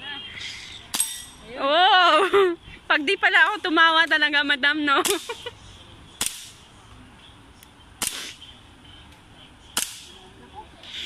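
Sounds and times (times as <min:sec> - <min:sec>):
airsoft pistol cracks: 0:06.2 - 0:06.6, 0:08.0 - 0:08.4, 0:09.8 - 0:10.1.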